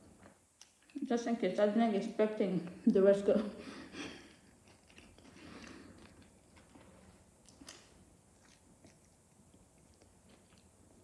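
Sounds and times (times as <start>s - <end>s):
chewing crisp cucumber: 4.3s - 11.0s.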